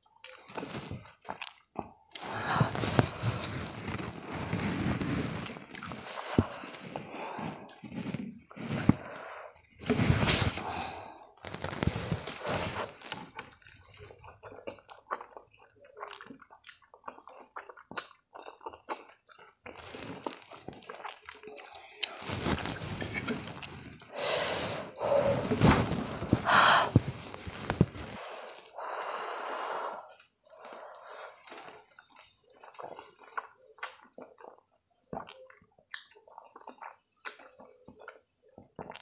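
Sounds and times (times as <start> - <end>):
noodle slurping: 2.1 - 13.5
wet chewing and lip-smacking: 13.0 - 22.2, 30.1 - 39.0.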